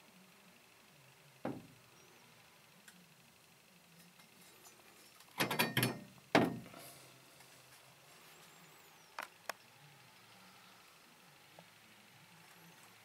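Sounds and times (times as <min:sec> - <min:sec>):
metal knocks: 0:01.5 - 0:01.7, 0:05.4 - 0:06.7
heavy metal clunk with ring: 0:05.4 - 0:06.7.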